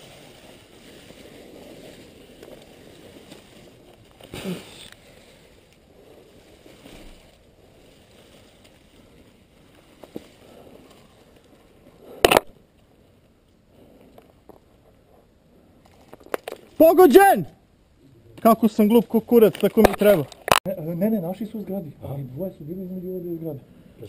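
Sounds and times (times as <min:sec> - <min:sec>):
leaves and branches rustling: 0:00.0 - 0:17.0.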